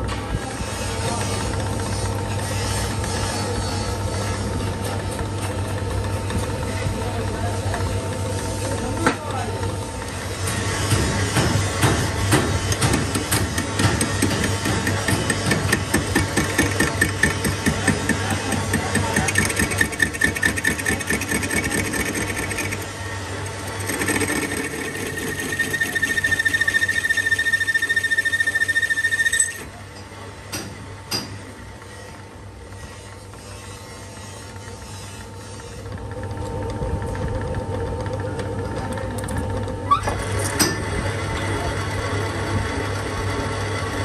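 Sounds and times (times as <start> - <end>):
lathe humming: 12.2 - 29.8
high cutting whine: 15.6 - 29.8.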